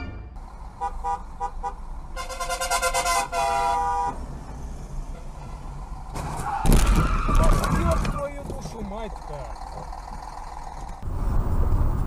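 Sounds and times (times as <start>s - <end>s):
car horns honking: 0.0s - 4.2s, 5.0s - 5.8s
engine and road noise: 0.0s - 12.0s.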